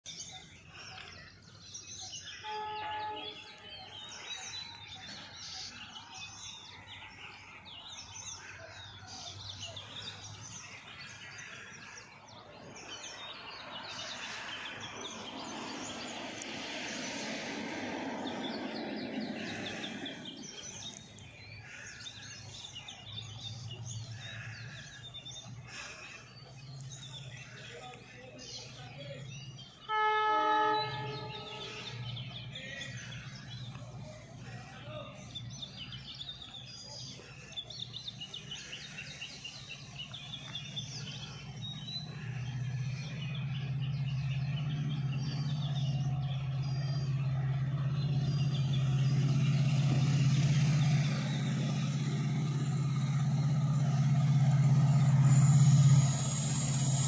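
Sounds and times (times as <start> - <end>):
small birds chirping: 0.0 - 57.0
rush of noise: 13.5 - 20.8
low hum: 44.4 - 57.0.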